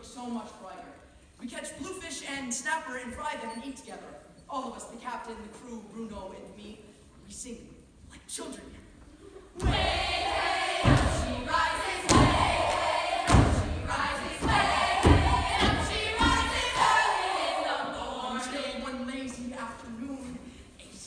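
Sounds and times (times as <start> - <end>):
heavy thumps: 9.6 - 17.5
group of people singing: 9.6 - 19.1.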